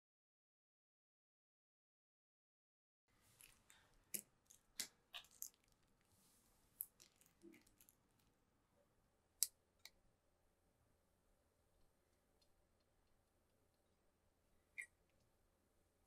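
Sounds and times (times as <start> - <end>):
aluminium foil crinkling and clicking: 4.4 - 6.0, 6.8 - 8.3.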